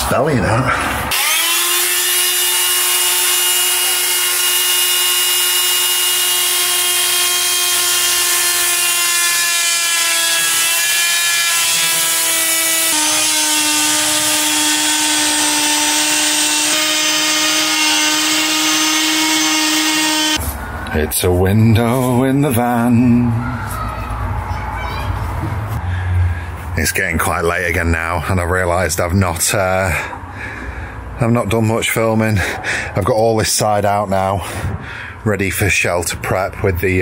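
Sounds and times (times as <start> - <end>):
power tool cutting plywood: 1.1 - 20.4.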